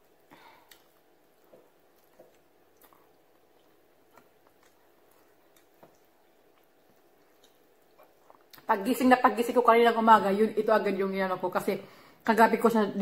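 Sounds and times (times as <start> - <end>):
person chewing: 0.0 - 8.7.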